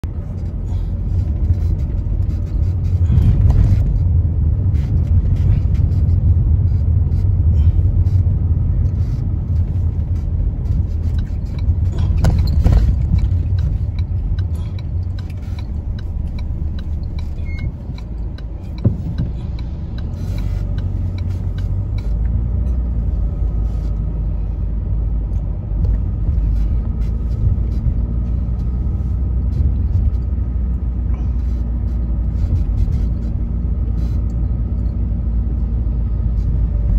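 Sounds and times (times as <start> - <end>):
road and engine rumble: 0.0 - 36.9
short knocks and rattles: 11.6 - 14.0.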